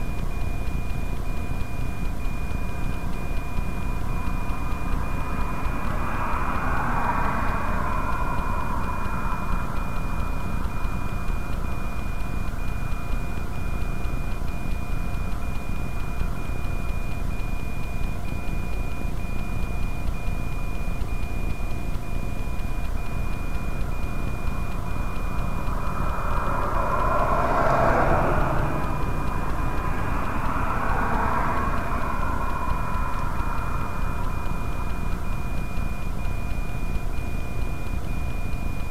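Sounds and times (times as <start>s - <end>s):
high tone: 0.0s - 14.1s, 20.9s - 38.9s
low rumble inside vehicle: 0.0s - 38.9s
car passing: 3.8s - 11.5s, 23.9s - 36.2s.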